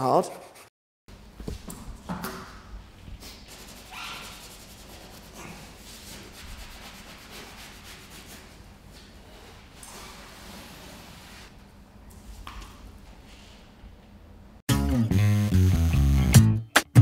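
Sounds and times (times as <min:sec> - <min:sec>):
scouring pad scrubbing rubber: 0:03.5 - 0:08.5, 0:10.1 - 0:11.5.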